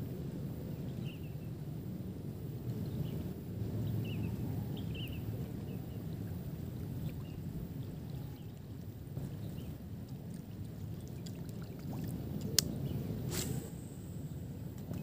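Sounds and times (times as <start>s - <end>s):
wind rumbling on microphone: 0.0s - 15.0s.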